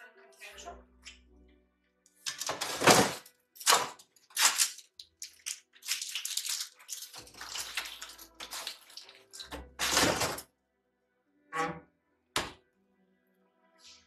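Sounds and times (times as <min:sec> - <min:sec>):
crinkling handling noise: 0:02.2 - 0:10.4.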